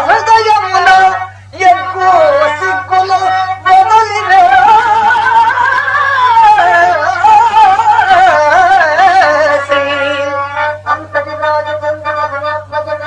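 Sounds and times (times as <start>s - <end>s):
man singing with vibrato: 0.0s - 13.0s.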